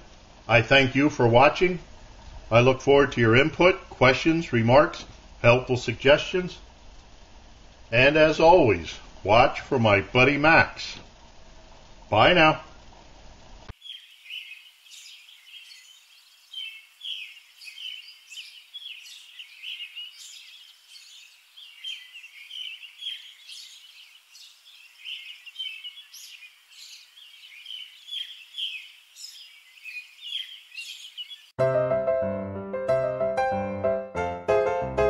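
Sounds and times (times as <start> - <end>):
birds chirping: 13.7 - 31.6
piano music: 31.6 - 35.0.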